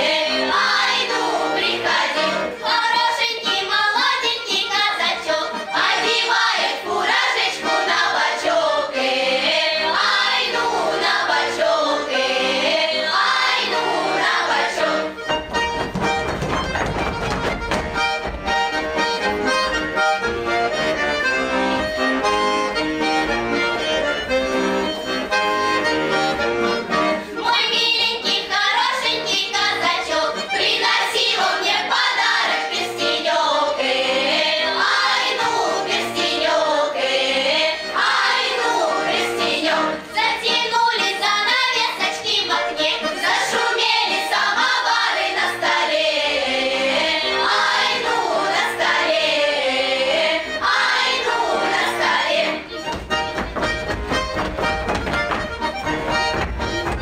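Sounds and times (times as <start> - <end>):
children singing: 0.0 - 15.3, 27.4 - 52.9
accordion playing folk tune: 0.0 - 57.0.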